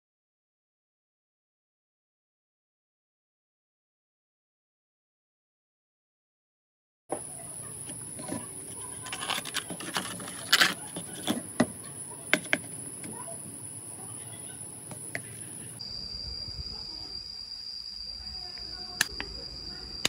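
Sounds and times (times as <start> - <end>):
high insect drone: 7.1 - 20.0
plastic bottles crinkling and clicking: 7.8 - 11.8.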